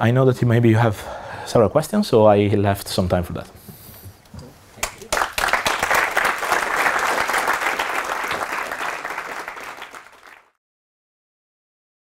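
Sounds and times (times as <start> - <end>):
audience applauding: 4.8 - 10.6.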